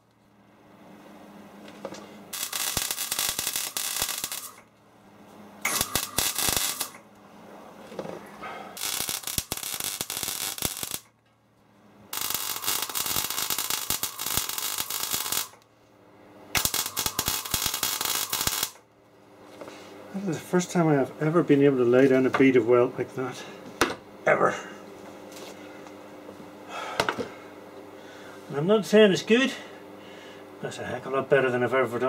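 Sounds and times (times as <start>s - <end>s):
welding arc crackling and sizzling: 1.9s - 4.7s, 5.6s - 7.2s, 8.7s - 11.2s, 12.1s - 15.7s, 16.5s - 18.9s.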